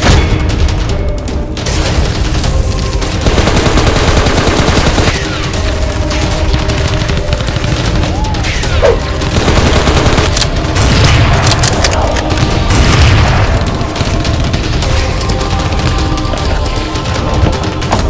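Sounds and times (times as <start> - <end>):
action music: 0.0 - 18.0
rapid gunfire: 0.0 - 18.0.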